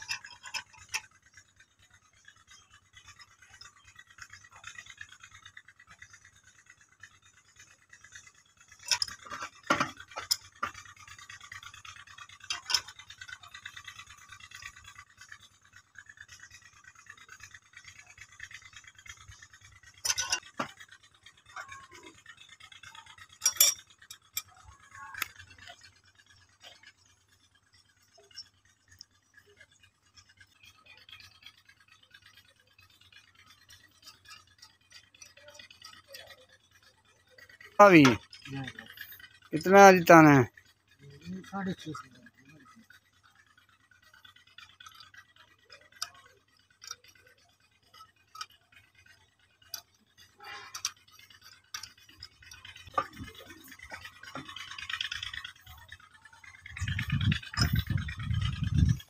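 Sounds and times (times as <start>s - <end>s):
metal tool scraping stone: 0.0s - 1.1s, 8.8s - 10.8s, 20.0s - 20.8s, 23.4s - 25.3s
metal clinking on stone: 23.4s - 25.2s.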